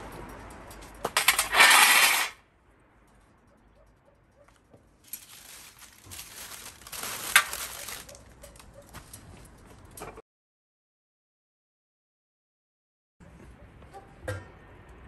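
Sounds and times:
charcoal clattering: 0:01.1 - 0:02.4, 0:05.0 - 0:08.7.

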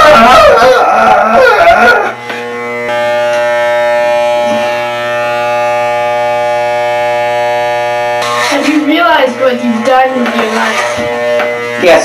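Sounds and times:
electric hair clippers buzzing: 0:00.0 - 0:12.0.

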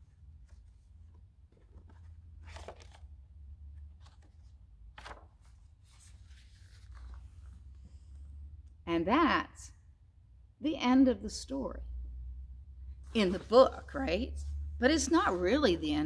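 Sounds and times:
low steady hum: 0:00.0 - 0:16.0
book pages rustling: 0:00.1 - 0:08.2, 0:13.0 - 0:15.8.

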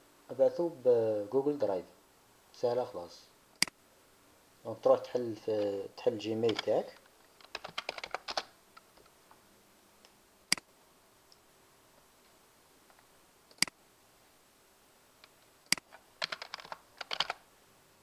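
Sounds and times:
keyboard typing: 0:06.4 - 0:06.8, 0:07.4 - 0:08.5, 0:15.7 - 0:17.4
computer mouse clicks: 0:13.5 - 0:13.8, 0:15.2 - 0:17.4.

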